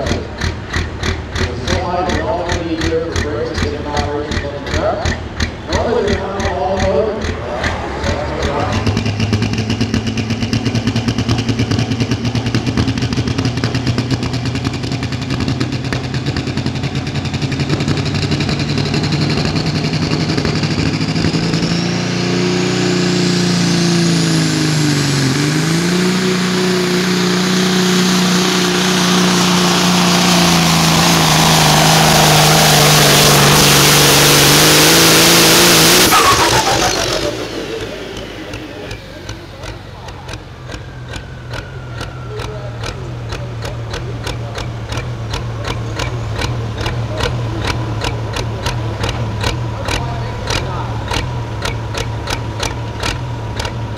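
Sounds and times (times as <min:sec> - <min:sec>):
diesel truck engine revving: 0:00.0 - 0:53.9
turbocharger whistle: 0:20.8 - 0:43.8.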